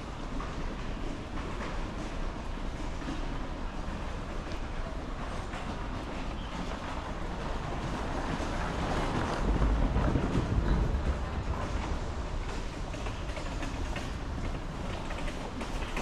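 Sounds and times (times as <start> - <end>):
wind on microphone: 7.8 - 15.2.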